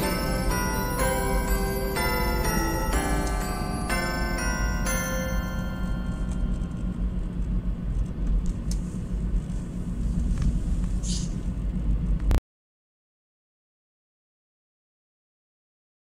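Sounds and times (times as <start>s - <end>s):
car engine and tyre rumble: 6.9s - 12.4s
brief hiss: 11.0s - 11.4s.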